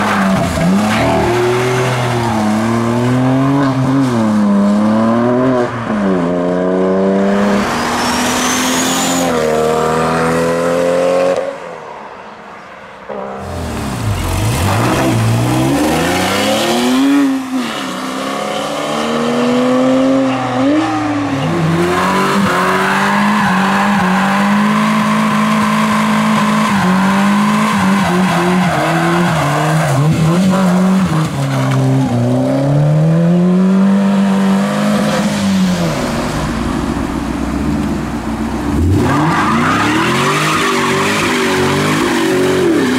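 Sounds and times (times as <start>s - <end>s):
car engine revving: 13.4s - 42.9s.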